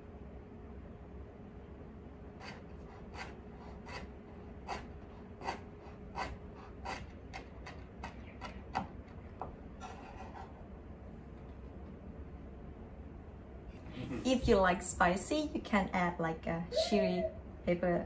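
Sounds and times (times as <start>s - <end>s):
knife blade scraping board: 2.4s - 8.5s, 9.8s - 10.6s
knife chopping on wooden board: 4.7s - 10.0s.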